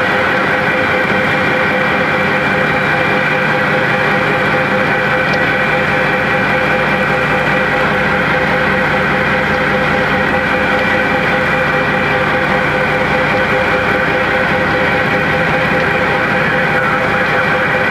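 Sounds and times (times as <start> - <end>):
truck engine idling: 0.0 - 17.9.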